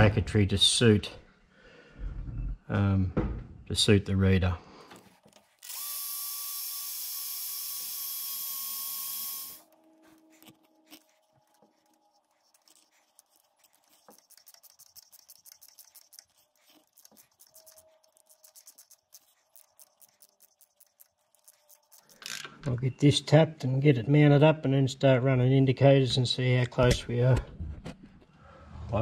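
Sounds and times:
cordless drill drilling into metal: 0:05.6 - 0:09.7.

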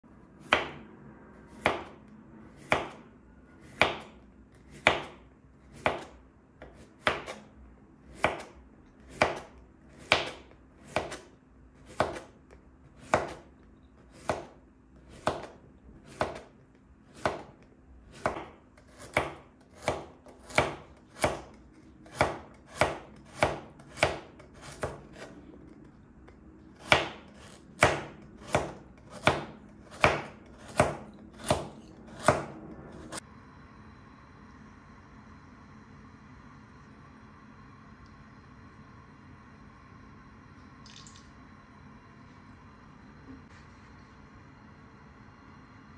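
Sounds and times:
slicer knocking on cutting board: 0:27.8 - 0:32.5.

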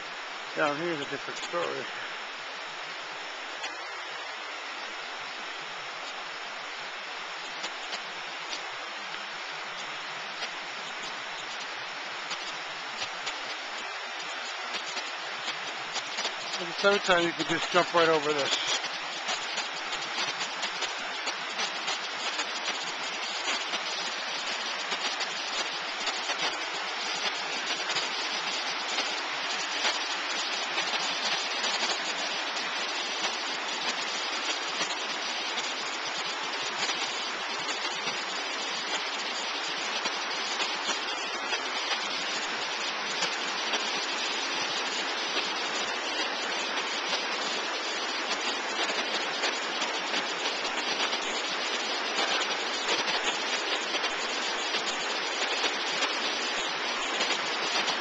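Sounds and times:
white water rushing: 0:00.0 - 0:58.0.

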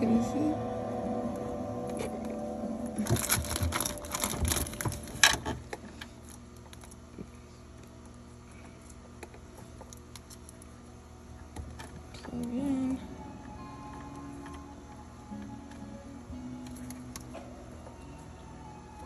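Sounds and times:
wires rustling: 0:01.4 - 0:10.8.

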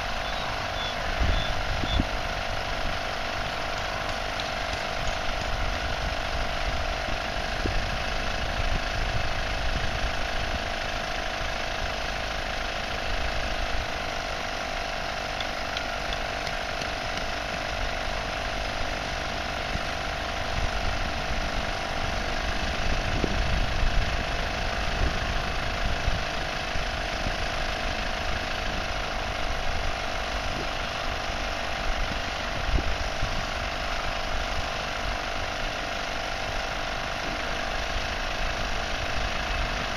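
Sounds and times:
electric air compressors humming: 0:00.0 - 0:39.9
wind on microphone: 0:01.1 - 0:02.2.

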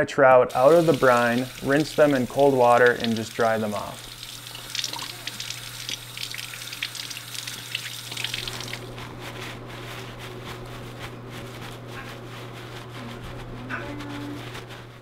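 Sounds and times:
paper towels rustling: 0:00.5 - 0:04.2, 0:08.0 - 0:15.0
faucet running into sink: 0:00.5 - 0:08.9
water splattering off fish: 0:00.5 - 0:08.9.

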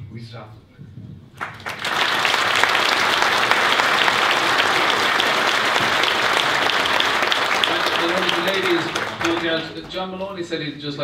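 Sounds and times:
audience applauding: 0:01.4 - 0:10.5.

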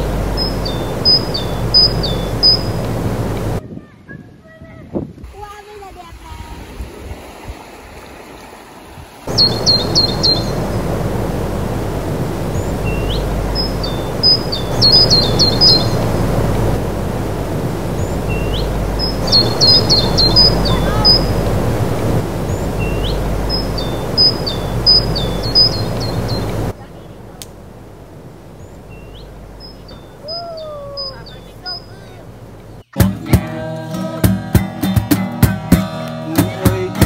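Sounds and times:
songbird chirping: 0:00.0 - 0:03.6, 0:09.3 - 0:33.0
outdoor background noise: 0:00.0 - 0:37.0.

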